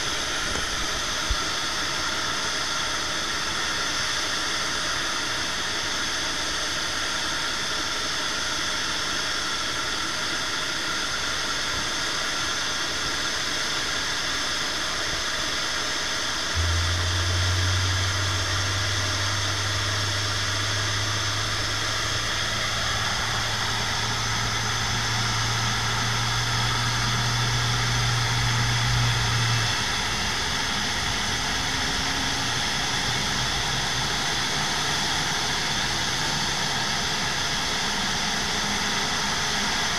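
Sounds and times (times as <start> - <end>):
jet engine hiss and whine: 0.0 - 39.9
deep steady hum: 16.5 - 39.9
tractor engine running: 16.6 - 39.9.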